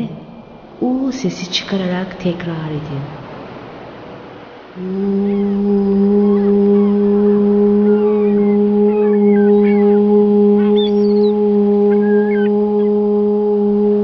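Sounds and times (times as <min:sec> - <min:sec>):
woman chanting a long vowel: 0:04.8 - 0:14.0.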